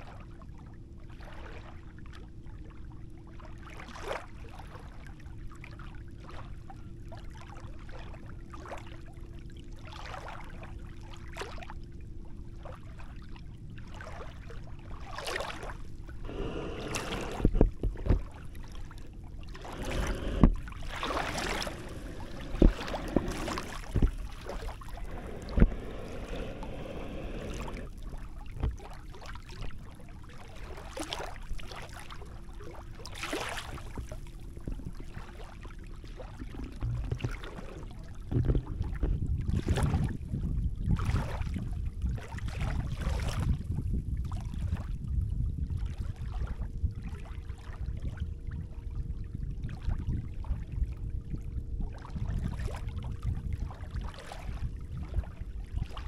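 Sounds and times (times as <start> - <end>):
faint steady hum: 0.0 - 42.2
small waves lapping at shore: 0.0 - 45.0, 45.7 - 49.0, 49.6 - 56.0.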